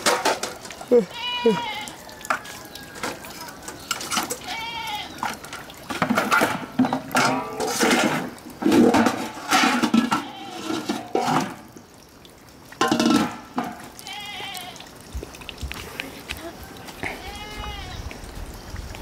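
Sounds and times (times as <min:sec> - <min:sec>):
metal pots and pans clattering: 0:00.0 - 0:00.9, 0:02.3 - 0:04.5, 0:05.2 - 0:11.7, 0:12.8 - 0:13.9.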